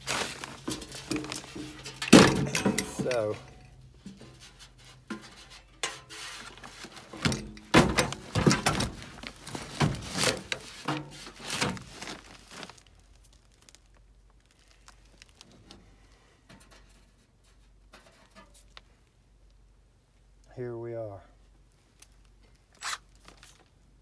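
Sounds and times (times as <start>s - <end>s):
wiring rustling and clicking: 0.0s - 4.4s.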